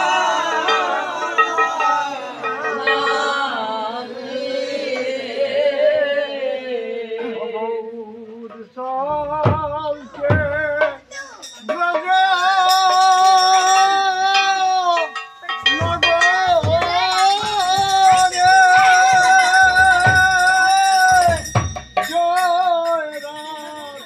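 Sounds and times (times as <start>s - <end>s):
men chanting together: 0.0s - 7.8s.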